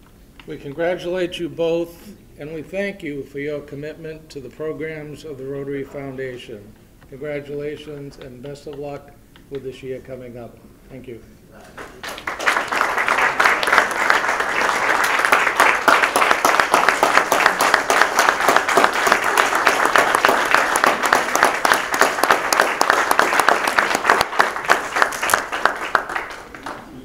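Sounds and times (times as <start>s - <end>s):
audience applauding: 11.8s - 27.0s.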